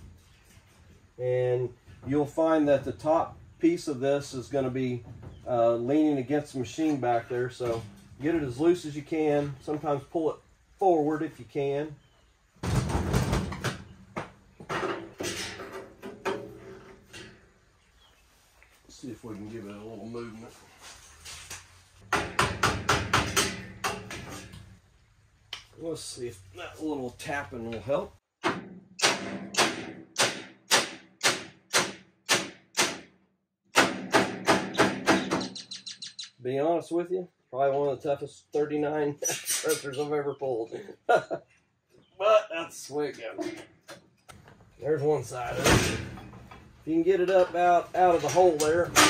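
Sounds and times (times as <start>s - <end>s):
scraping and rustling: 18.2s - 22.0s
sharp knocks of metal parts: 22.0s - 24.8s, 33.8s - 35.7s, 48.2s - 49.0s.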